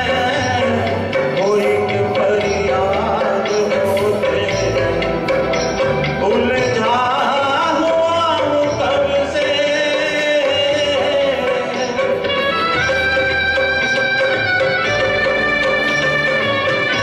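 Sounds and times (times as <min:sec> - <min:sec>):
man singing into microphone: 0:00.0 - 0:13.2
instrumental backing music: 0:00.0 - 0:17.0.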